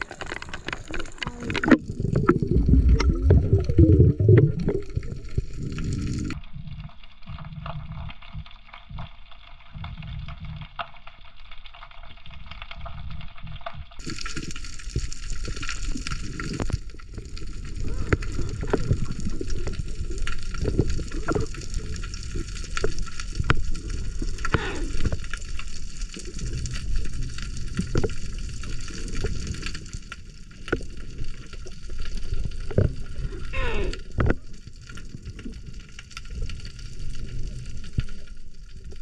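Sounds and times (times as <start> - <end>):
sharp underwater clicks: 0.0 - 6.4
underwater gurgling wash: 0.0 - 39.0.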